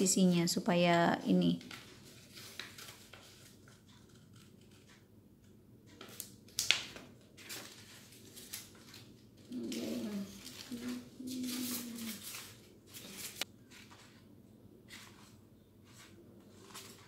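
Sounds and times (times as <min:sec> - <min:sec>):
paper rustling: 0:01.6 - 0:05.0, 0:06.0 - 0:17.0
scissors snipping paper: 0:01.6 - 0:05.1, 0:06.0 - 0:13.5.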